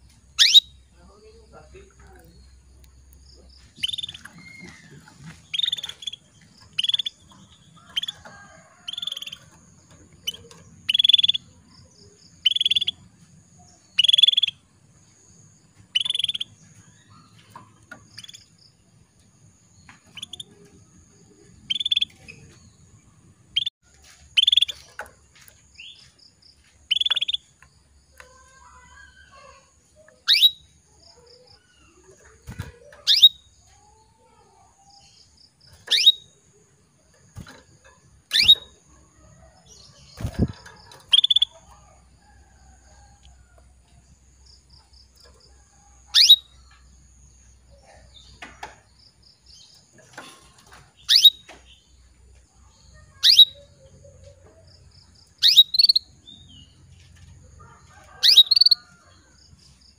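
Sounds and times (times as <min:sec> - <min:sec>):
canary chirping: 0:00.0 - 0:13.2, 0:13.8 - 0:14.6, 0:15.9 - 0:18.8, 0:20.0 - 0:23.7, 0:24.4 - 0:25.1, 0:26.8 - 0:27.6, 0:28.2 - 0:36.6, 0:37.3 - 0:42.0, 0:46.0 - 0:46.8, 0:49.3 - 0:51.9, 0:53.0 - 0:54.3, 0:55.2 - 0:56.8, 0:58.1 - 0:58.9.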